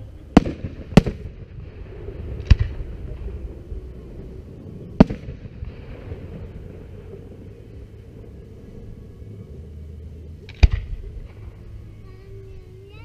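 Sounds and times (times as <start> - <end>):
low rumble: 0.0 - 13.0
firework shells bursting: 0.3 - 8.0.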